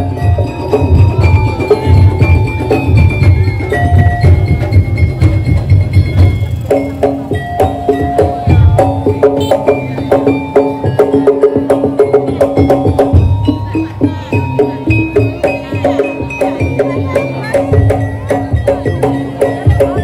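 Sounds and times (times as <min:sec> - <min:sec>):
drum and block strikes: 0:00.0 - 0:20.0.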